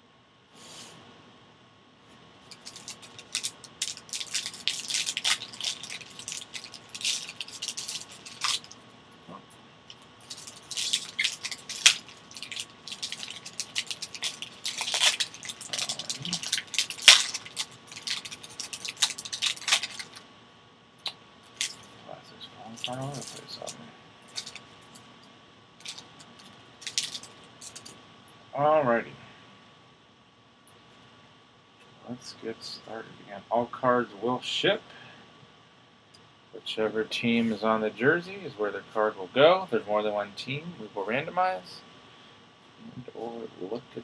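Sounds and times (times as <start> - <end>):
foil wrapper crinkling and tearing: 2.5 - 8.8, 10.2 - 20.2, 22.7 - 23.7, 24.3 - 25.0, 25.8 - 27.9.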